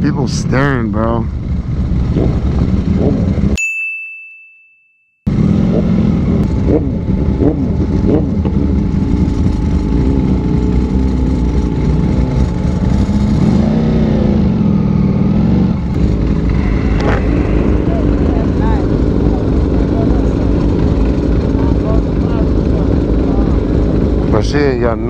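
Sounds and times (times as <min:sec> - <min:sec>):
motorcycle engines running: 0:00.0 - 0:03.6, 0:05.3 - 0:25.0.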